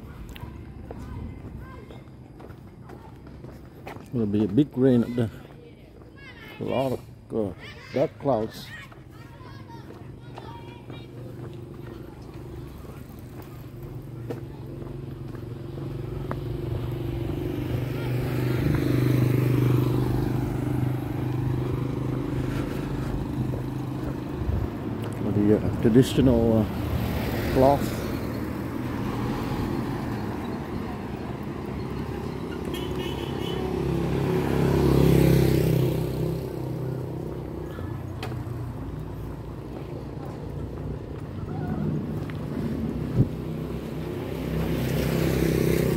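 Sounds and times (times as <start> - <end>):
vehicle engine hum: 0.0 - 45.9
motorcycle passing by: 10.4 - 45.9.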